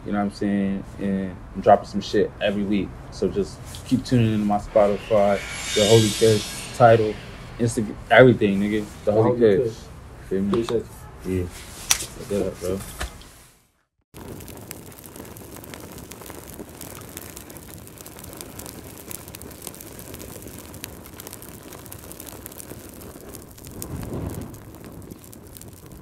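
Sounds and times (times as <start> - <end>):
fire crackling: 1.7 - 9.8, 11.5 - 13.5, 14.1 - 26.0
low rumbling: 2.9 - 10.2.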